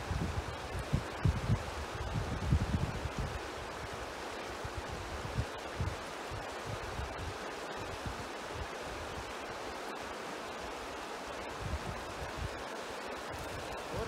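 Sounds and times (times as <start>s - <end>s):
wind buffeting microphone: 0.0s - 3.9s, 11.5s - 12.6s
river rushing over rocks: 0.0s - 14.0s.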